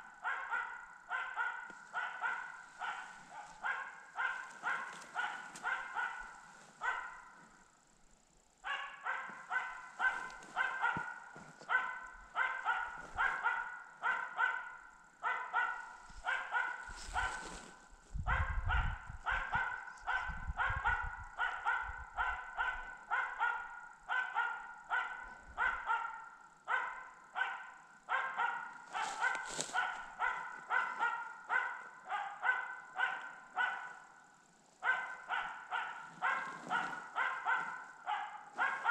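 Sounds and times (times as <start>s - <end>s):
dog barking rapidly: 0.0s - 7.6s, 8.6s - 38.9s
low microphone rumble: 18.0s - 22.2s.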